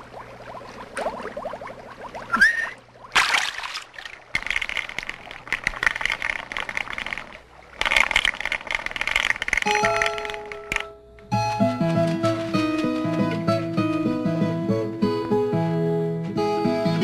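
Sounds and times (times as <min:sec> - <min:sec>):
water splashing: 0:00.0 - 0:10.5
water dripping: 0:00.0 - 0:10.9.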